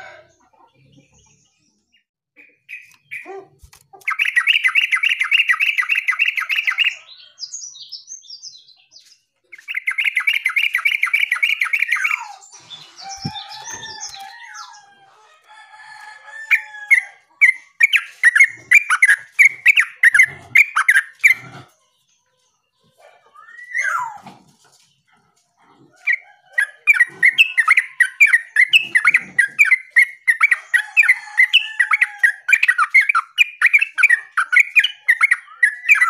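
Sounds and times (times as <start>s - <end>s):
bird chattering trill: 26.1s - 36.0s.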